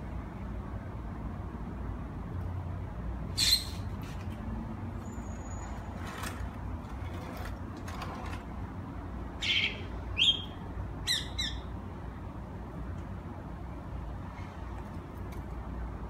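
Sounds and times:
bird giving sharp calls: 9.4s - 11.7s.

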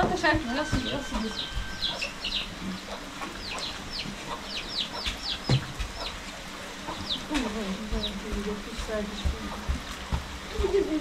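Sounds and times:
chickens chirping: 0.0s - 11.0s.

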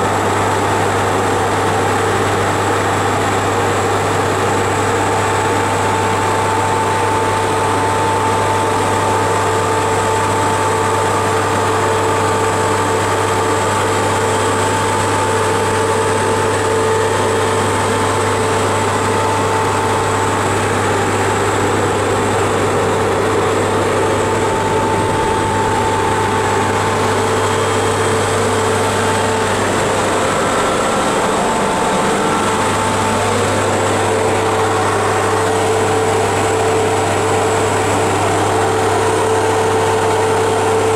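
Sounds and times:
deep machinery hum: 0.0s - 40.9s.

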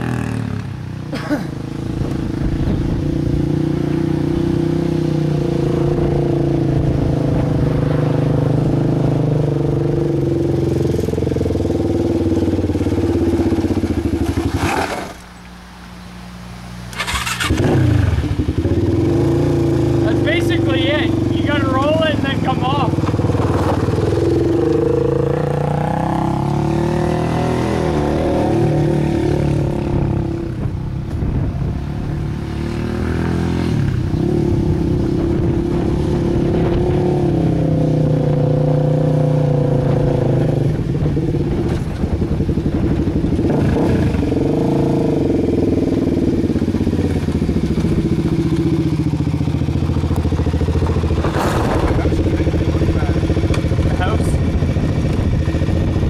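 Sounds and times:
quad engine revving: 16.9s - 30.7s, 32.1s - 56.0s.

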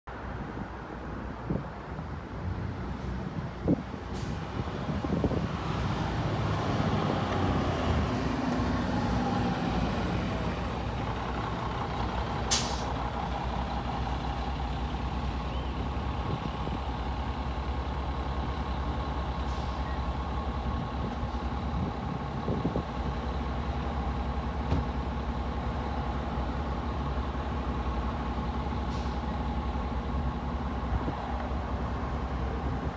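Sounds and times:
bus engine drone: 0.1s - 32.9s
air brake hiss: 4.1s - 4.4s, 12.5s - 13.0s, 19.5s - 19.9s, 28.9s - 29.3s.

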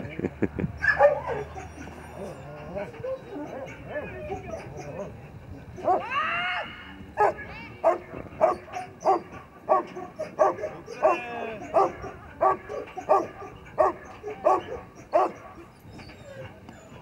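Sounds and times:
dog barking: 0.8s - 1.9s, 5.8s - 6.0s, 7.2s - 15.7s
dog whining: 0.8s - 6.2s, 7.2s - 17.0s.

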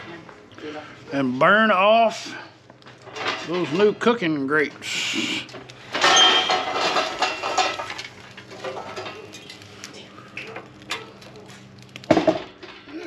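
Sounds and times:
light clinks of coals: 5.4s - 12.1s
charcoal clattering onto metal grate: 5.8s - 13.0s.

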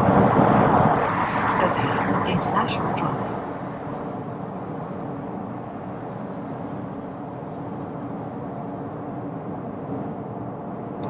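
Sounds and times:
car cabin road noise: 0.0s - 5.9s.

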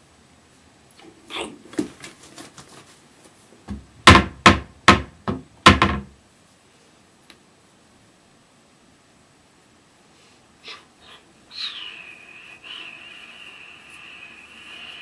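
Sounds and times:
loud thuds: 3.7s - 6.1s.

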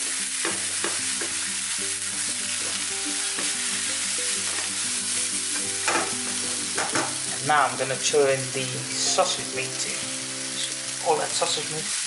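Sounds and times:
vegetables sizzling in frying pan: 0.0s - 12.0s
spatula scraping and tapping pan: 0.4s - 1.5s, 2.6s - 3.7s, 4.4s - 4.8s, 5.5s - 7.2s.

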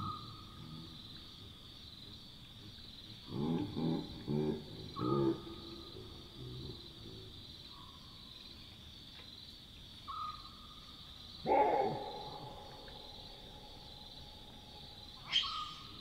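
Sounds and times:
night insects chirring: 0.0s - 16.0s
baboon alarm bark: 11.4s - 12.3s.

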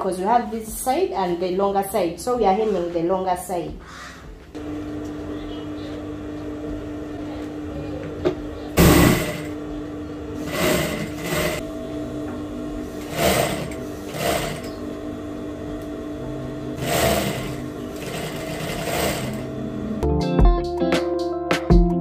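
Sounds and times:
sewing machine motor hum: 8.7s - 20.0s
sewing machine sewing fabric: 8.8s - 9.5s, 10.4s - 11.6s, 13.0s - 14.8s, 16.8s - 19.5s.

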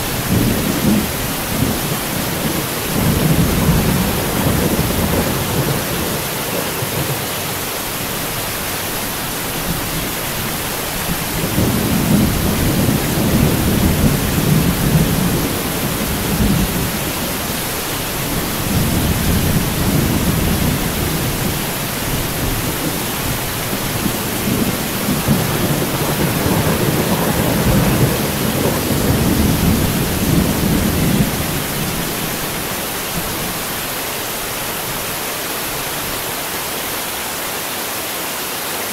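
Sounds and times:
heavy rain falling: 0.0s - 38.9s
rolling thunder: 0.1s - 8.5s, 11.0s - 33.6s.

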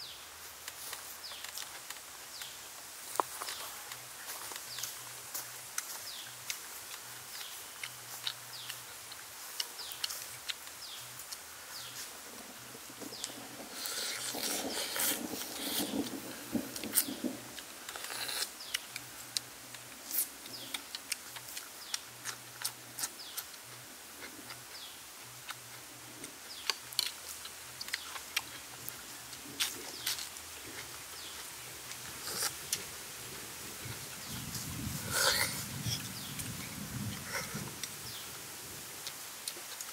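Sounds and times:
wet chewing clicks: 0.7s - 12.0s, 13.1s - 32.9s, 39.0s - 39.9s
person slurping snail: 13.7s - 16.1s, 32.1s - 32.9s, 35.0s - 36.1s.

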